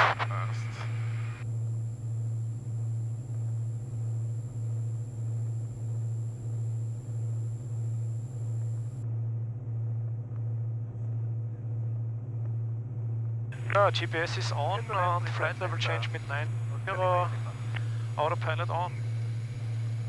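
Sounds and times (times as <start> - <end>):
propeller engines droning: 0.0 - 9.0, 13.6 - 20.0.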